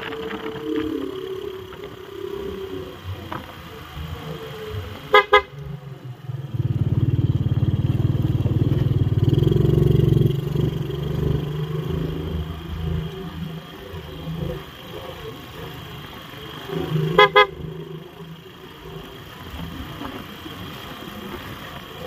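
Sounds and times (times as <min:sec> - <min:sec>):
motorcycle engine running: 0:00.0 - 0:22.0
motorcycle horn toots: 0:05.1 - 0:05.6, 0:17.1 - 0:17.6.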